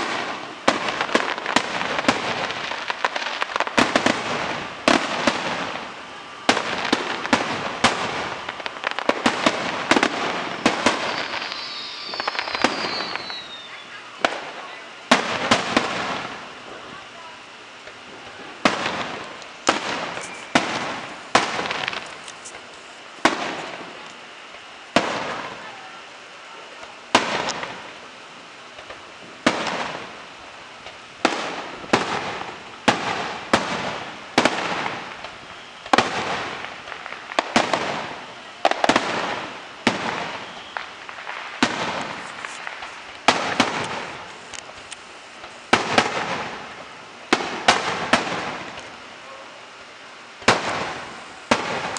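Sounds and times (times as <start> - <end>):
firework shells bursting: 0.0 - 16.9, 17.8 - 24.2, 30.8 - 49.0.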